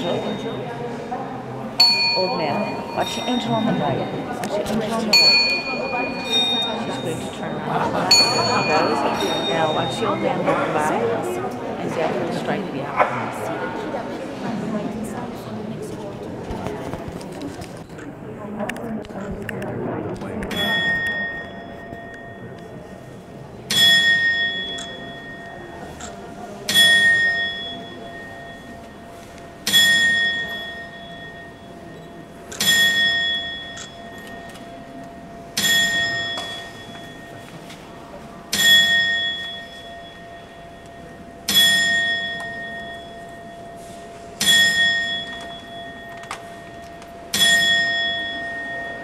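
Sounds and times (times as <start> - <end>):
clock bell striking: 1.8 - 11.0, 20.5 - 49.0.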